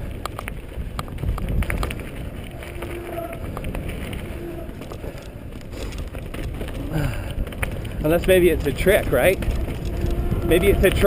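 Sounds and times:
bike chain and frame rattling: 0.0 - 11.0
bike tyres on dirt: 0.0 - 11.0
wind rumbling on microphone: 0.0 - 11.0
short squeaks: 2.6 - 5.3.

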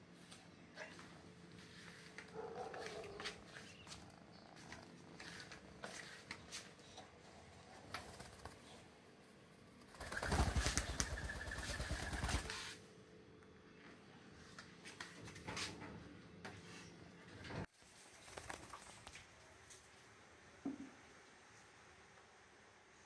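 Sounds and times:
bird wings flapping: 7.7 - 8.9, 9.8 - 12.8, 17.9 - 19.4.

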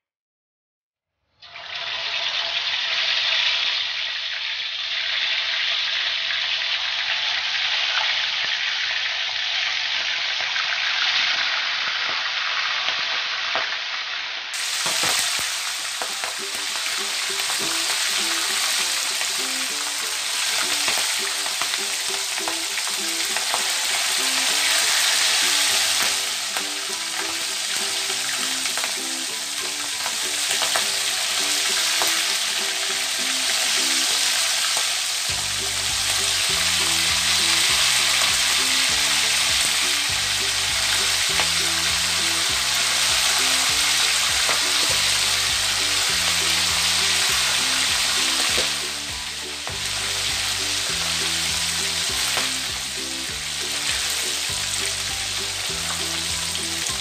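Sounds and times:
chicken deep-frying in oil: 1.2 - 57.0
background music: 14.6 - 57.0
bass line: 35.3 - 57.0.

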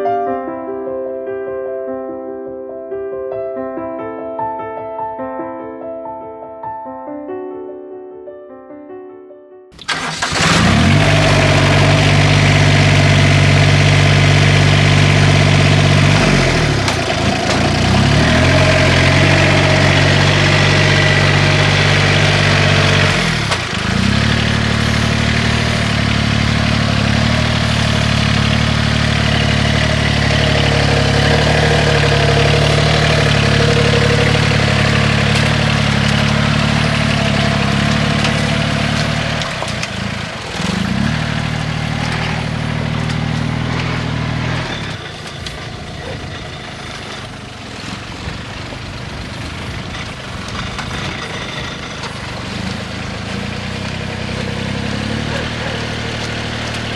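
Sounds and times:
rice transplanter engine running: 9.8 - 56.9.

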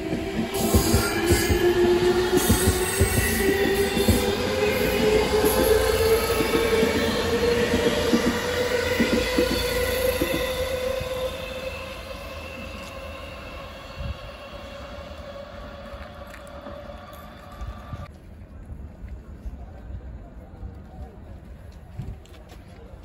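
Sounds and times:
train wheels rumbling and clacking: 0.0 - 18.1
train whining tone: 0.0 - 18.1.

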